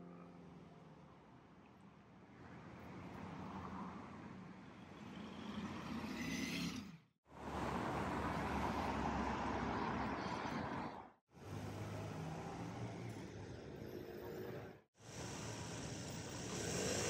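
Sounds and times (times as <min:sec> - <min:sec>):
cars driving past: 0:07.3 - 0:14.8.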